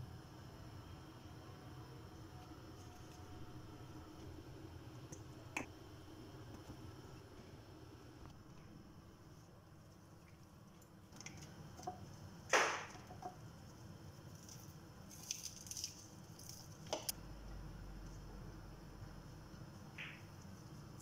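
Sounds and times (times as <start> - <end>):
soft squishes and rustles: 13.1 - 17.1.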